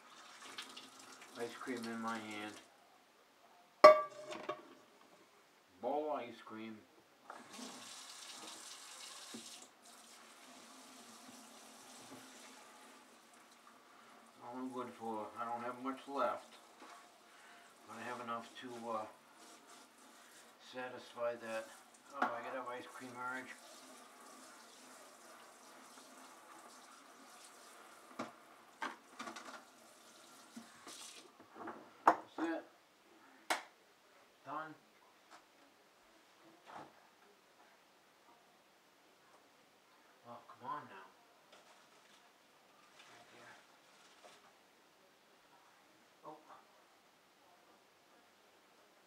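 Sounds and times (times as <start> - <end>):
faucet running into sink: 0.0 - 2.1, 7.3 - 13.7, 21.6 - 31.3.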